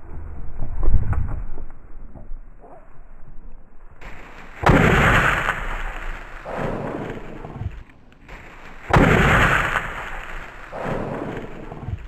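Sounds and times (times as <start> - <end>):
shotgun shots: 4.0 - 12.0.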